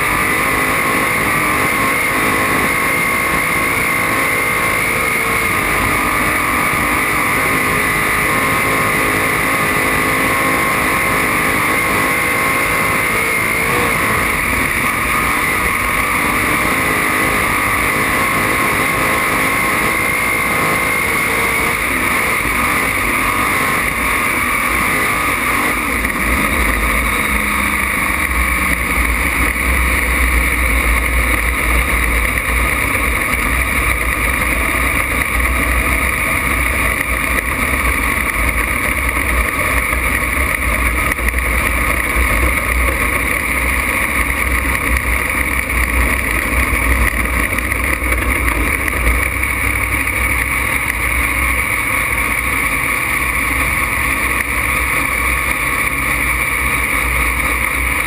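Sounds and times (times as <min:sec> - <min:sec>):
race car engine drone: 0:00.0 - 0:58.0
deeper engine rumble: 0:21.7 - 0:58.0.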